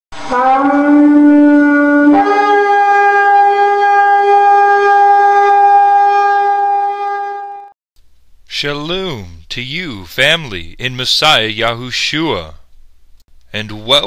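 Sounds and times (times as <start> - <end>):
shofar blast: 0.2 - 7.8.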